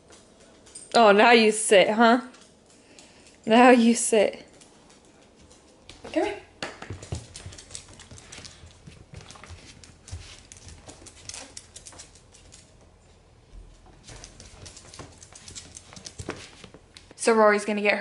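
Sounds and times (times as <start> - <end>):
person's footsteps: 4.4 - 17.2
dog claws clicking on hard floor: 4.5 - 12.9, 14.0 - 17.1.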